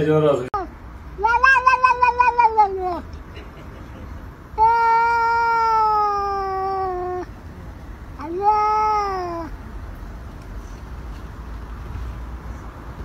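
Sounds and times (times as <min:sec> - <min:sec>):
cat yowling: 0:01.2 - 0:03.0, 0:04.6 - 0:07.3, 0:08.2 - 0:09.5.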